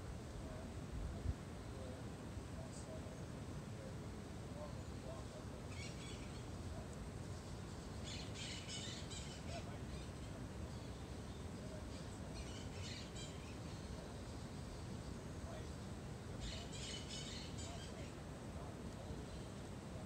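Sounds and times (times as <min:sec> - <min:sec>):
birds chirping: 0:04.6 - 0:20.0.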